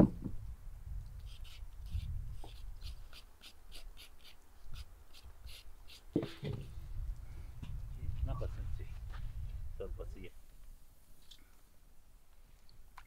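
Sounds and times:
peeler scraping carrot: 0:01.2 - 0:06.5.

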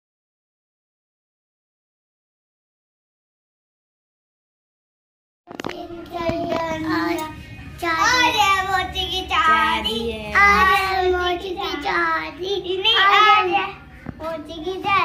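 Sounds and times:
young children singing: 0:05.8 - 0:15.0.

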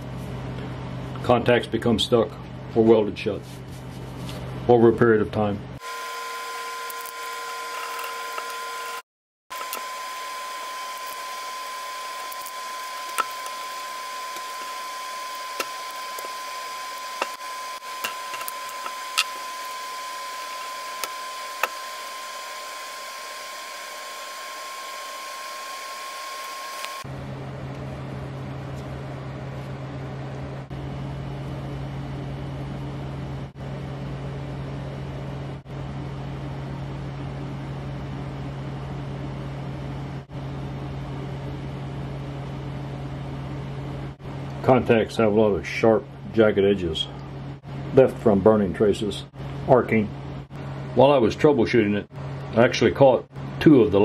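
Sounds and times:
mechanical whir with high tone: 0:05.8 - 0:27.1.

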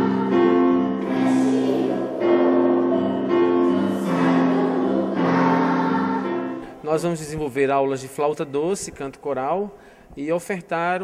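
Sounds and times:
children singing: 0:00.0 - 0:06.8.

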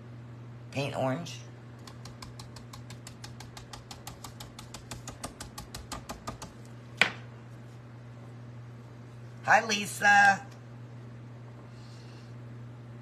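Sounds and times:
stencil brush tapping: 0:01.8 - 0:07.1.

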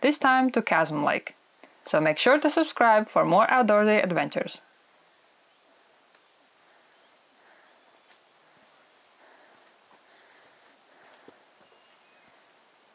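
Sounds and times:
insect trilling: 0:05.4 - 0:12.9.

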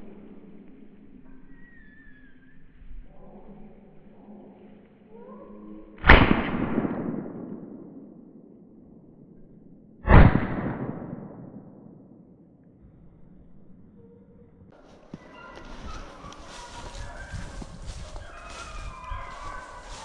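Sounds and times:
shotgun blasts with rolling echo: 0:06.0 - 0:08.8, 0:10.0 - 0:12.5
faint hound baying: 0:14.0 - 0:20.0.

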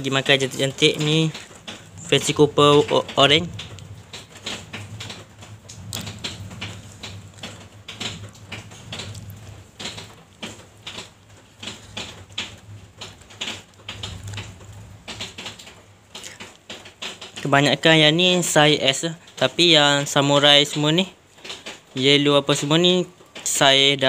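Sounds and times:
steady low hum: 0:00.0 - 0:16.6
light clicks and taps: 0:00.0 - 0:17.9.

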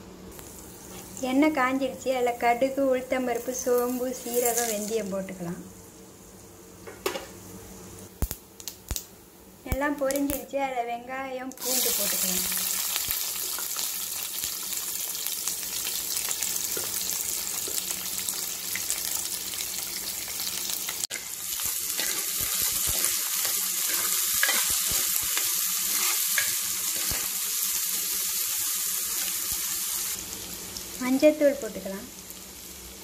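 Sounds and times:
onion and garlic sizzling in oil: 0:00.2 - 0:33.0
steel spoon scraping a pan: 0:21.1 - 0:27.2.

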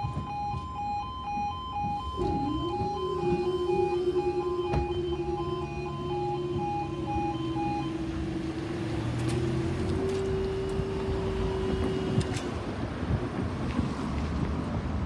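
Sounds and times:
two-tone level crossing alarm: 0:00.0 - 0:12.6
steady hum: 0:02.0 - 0:12.6.

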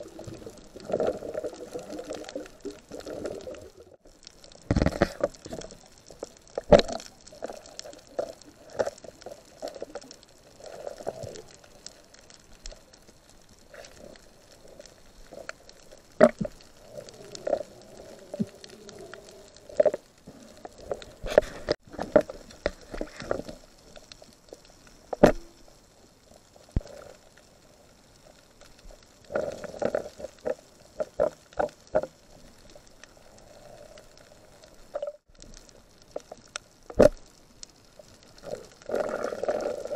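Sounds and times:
water swishing and gurgling: 0:00.0 - 0:39.9
underwater knocks and clicks: 0:04.6 - 0:10.1, 0:15.4 - 0:16.6, 0:25.1 - 0:25.5, 0:29.4 - 0:32.2.

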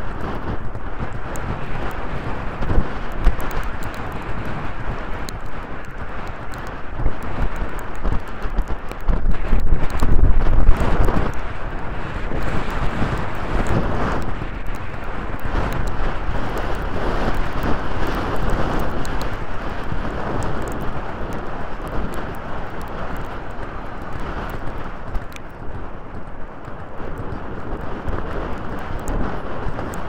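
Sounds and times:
wind on microphone: 0:00.0 - 0:30.0
sharp ticks: 0:00.1 - 0:30.0.

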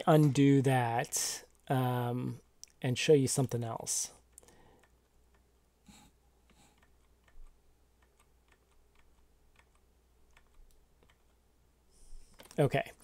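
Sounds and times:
keyboard and mouse clicks: 0:04.3 - 0:11.4, 0:12.2 - 0:12.6.

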